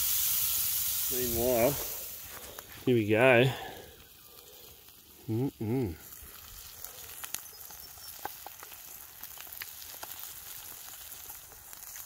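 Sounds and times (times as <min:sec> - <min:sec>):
meat sizzling in a pan: 0:00.0 - 0:12.0
pops and crackles: 0:01.7 - 0:03.0, 0:03.8 - 0:12.0.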